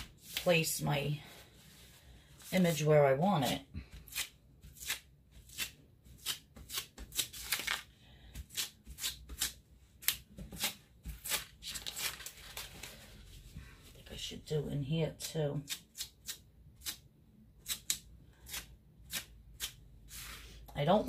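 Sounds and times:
paper towel rustling on tape: 0:11.0 - 0:13.6.

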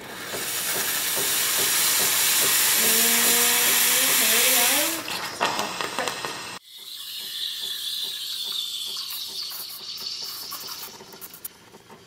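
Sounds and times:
steam wand hissing: 0:00.0 - 0:06.6.

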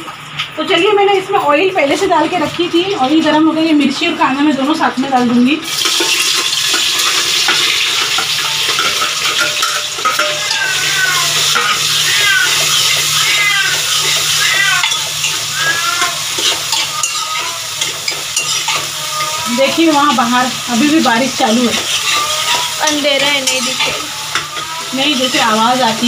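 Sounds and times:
vegetables sizzling in hot oil: 0:04.8 - 0:26.0
metal spoon stirring in pot: 0:05.8 - 0:26.0.

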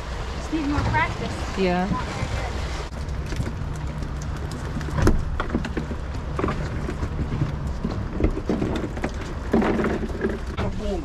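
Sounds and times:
boat engine idling: 0:00.0 - 0:11.0.

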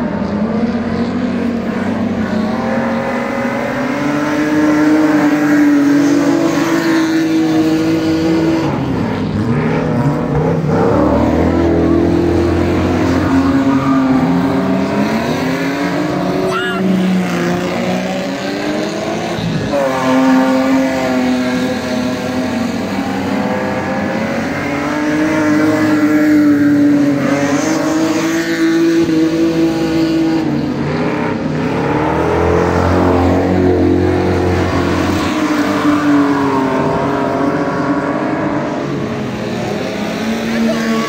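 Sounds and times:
race car engines revving: 0:00.0 - 0:41.0.

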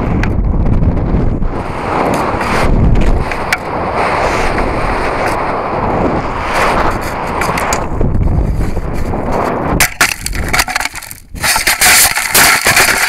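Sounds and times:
air rushing over microphone: 0:00.0 - 0:10.6
knocks and crackling in soil: 0:06.9 - 0:13.0.

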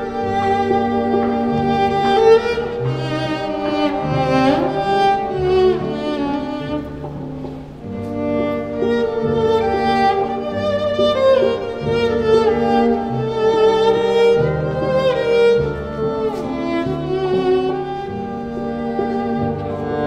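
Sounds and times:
cello bowed in sustained notes: 0:00.0 - 0:20.0.

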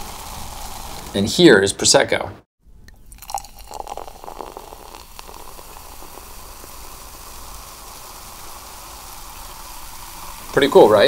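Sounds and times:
fizzing hiss: 0:00.0 - 0:01.3, 0:03.1 - 0:11.0
liquid pouring into a glass: 0:02.9 - 0:10.6.

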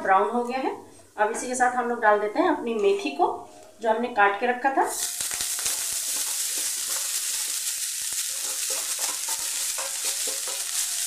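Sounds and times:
leaves sizzling in hot oil: 0:04.9 - 0:11.0
stirring clicks and scrapes: 0:08.3 - 0:11.0.

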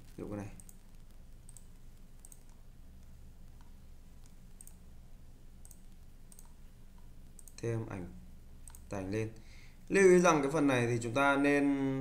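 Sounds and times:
low electrical hum: 0:00.0 - 0:12.0
computer mouse clicks: 0:00.5 - 0:04.9, 0:05.6 - 0:07.7, 0:08.6 - 0:09.0.

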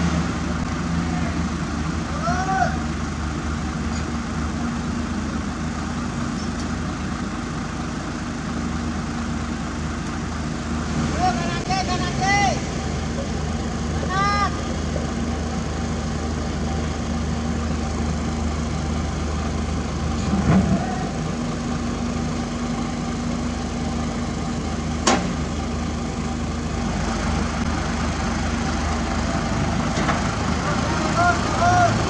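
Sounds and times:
diesel machinery engines running: 0:00.0 - 0:32.0
sharp metallic knock: 0:25.0 - 0:25.4.

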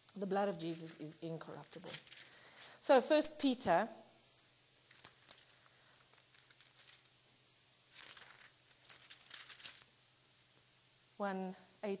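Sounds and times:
paper crinkling: 0:01.5 - 0:02.3, 0:04.9 - 0:07.2, 0:07.9 - 0:09.9
paper pages turning: 0:04.9 - 0:07.1, 0:07.9 - 0:09.9.

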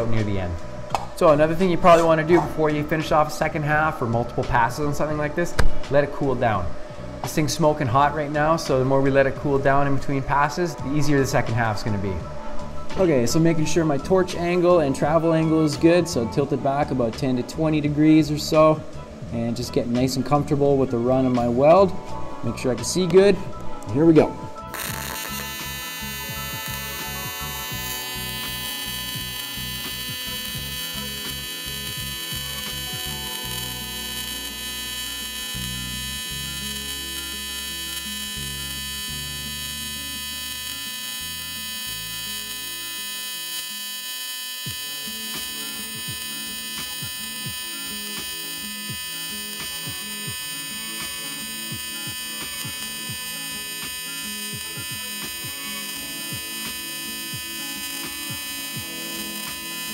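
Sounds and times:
welding arc buzzing: 0:24.6 - 0:59.9.

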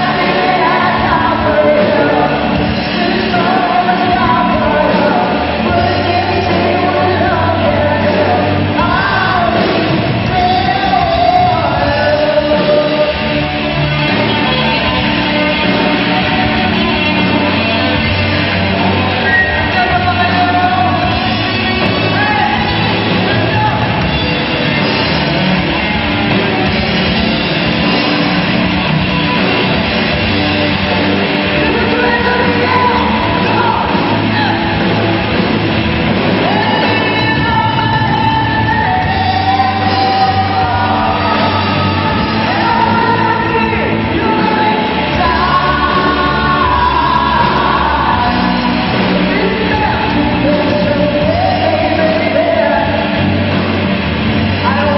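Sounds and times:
man singing: 0:00.0 - 0:24.9, 0:26.2 - 0:35.4, 0:36.1 - 0:53.8, 0:54.4 - 0:54.9
electric guitars: 0:00.0 - 0:54.9
live rock band playing: 0:00.0 - 0:54.9.

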